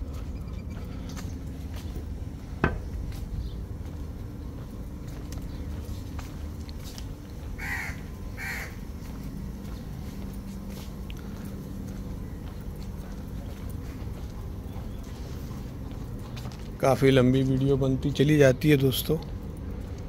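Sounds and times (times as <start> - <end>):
faint footsteps on stone: 0.0 - 18.3, 18.9 - 20.0
steady low hum: 0.0 - 20.0
crow cawing: 7.6 - 8.8.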